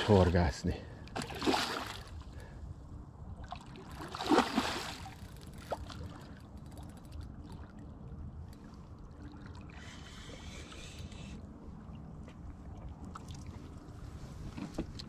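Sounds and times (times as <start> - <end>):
water lapping at riverbank: 0.0 - 15.0.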